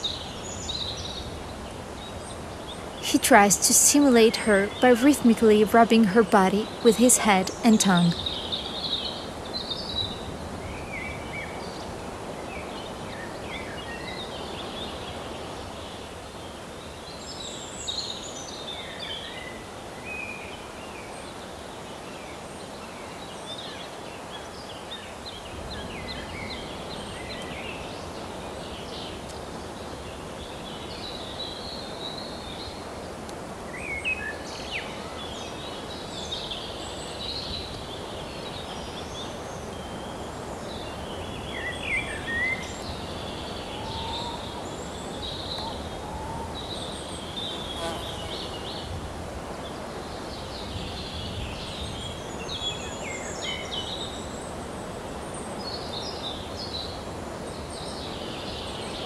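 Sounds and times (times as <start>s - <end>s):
steady background hiss: 0.0s - 59.0s
small birds chirping and trilling: 33.8s - 49.0s.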